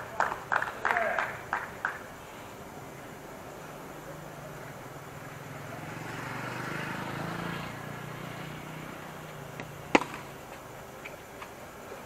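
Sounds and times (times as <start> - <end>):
cricket bat hitting ball: 9.6 - 10.6.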